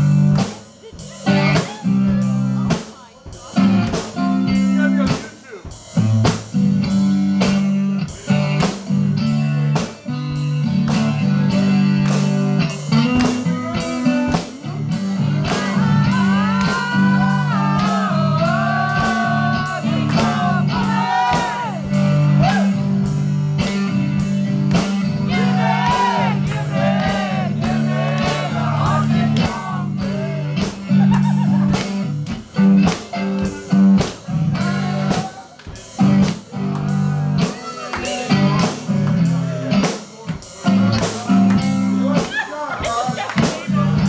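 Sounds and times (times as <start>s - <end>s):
drum kit rock beat: 0.0s - 44.0s
guitar playing blues-rock: 0.0s - 44.0s
sliding bending lead guitar line: 6.0s - 35.2s.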